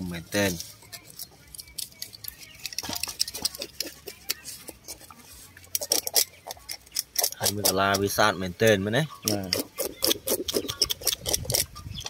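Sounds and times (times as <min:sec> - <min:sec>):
scissors snipping: 0:05.7 - 0:08.1.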